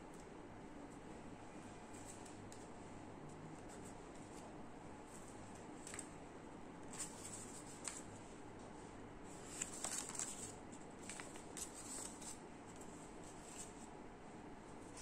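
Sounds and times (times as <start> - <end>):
paper rustling: 6.9 - 8.1, 9.4 - 13.9.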